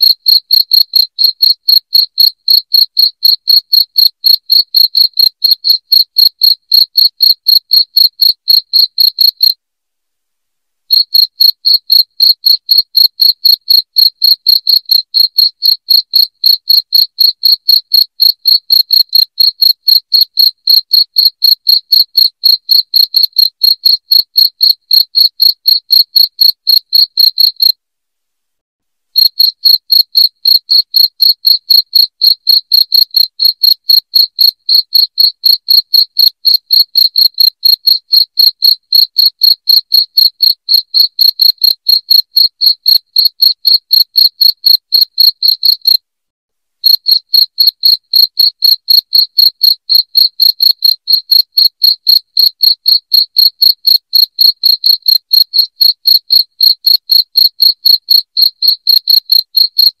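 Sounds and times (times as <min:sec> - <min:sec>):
crickets chirping: 0:10.9 - 0:18.8.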